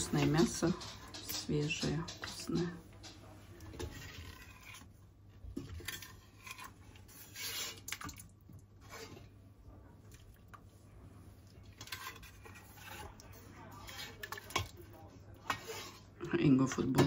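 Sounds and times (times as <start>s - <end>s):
pots and utensils clattering: 0.0s - 4.9s, 11.6s - 17.0s
knocks and scrapes: 0.0s - 8.2s, 11.6s - 16.2s.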